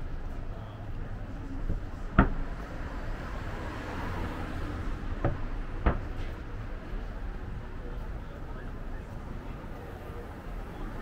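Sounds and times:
low rumble of traffic: 0.0 - 11.0
sharp knocks: 2.1 - 2.5, 5.2 - 6.4.

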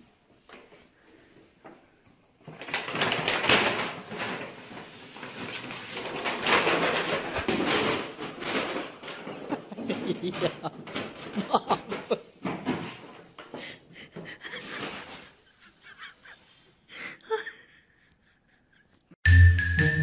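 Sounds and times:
paper bag rustling on tiled floor: 2.3 - 13.6, 14.2 - 16.7.

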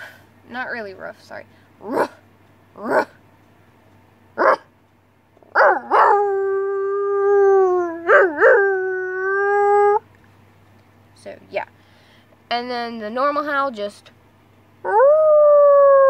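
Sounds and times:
person howling like wolf: 5.7 - 10.0, 14.8 - 16.0.

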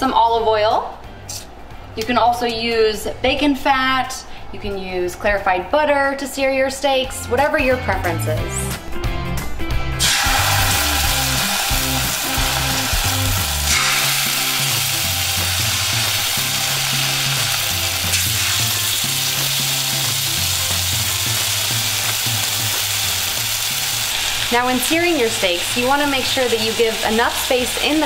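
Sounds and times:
background music with bass line: 7.1 - 24.1
steaks sizzling in oil: 10.0 - 28.0.

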